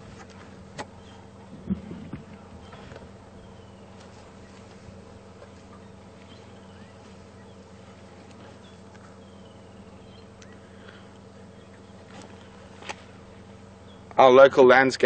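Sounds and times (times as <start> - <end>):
steady low hum: 0.0 - 15.0
faint high chirps: 8.5 - 12.0.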